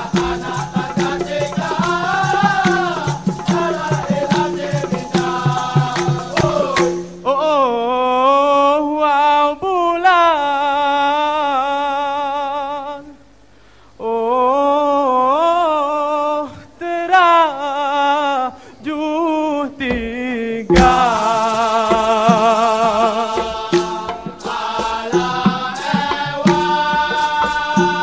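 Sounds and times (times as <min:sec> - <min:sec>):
rattling percussion: 0:00.0 - 0:07.3, 0:19.9 - 0:28.0
solo singer wavering vocal line: 0:00.0 - 0:13.3, 0:14.0 - 0:28.0.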